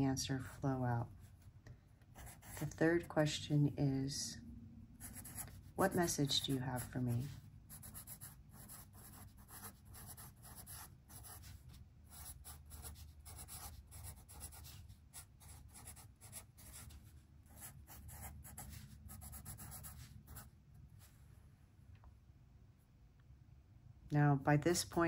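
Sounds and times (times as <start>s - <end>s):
pen scratching on paper: 2.2s - 2.8s, 5.0s - 20.5s.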